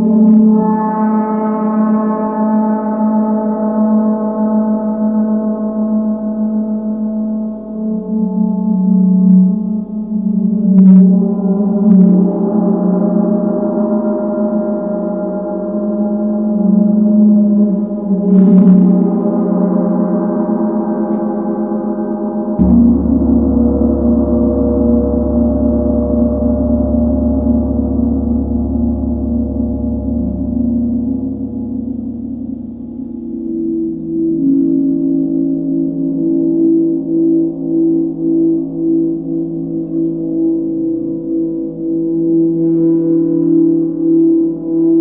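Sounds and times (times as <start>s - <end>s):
deep low hum: 16.3s - 38.2s
gong ringing: 17.5s - 35.6s
mallet strikes on gong: 22.6s - 32.2s.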